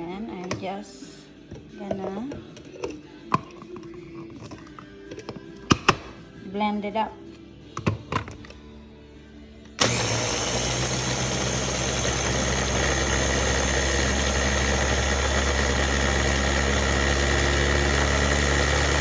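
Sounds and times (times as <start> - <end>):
food chopper motor whirring: 9.8 - 19.0.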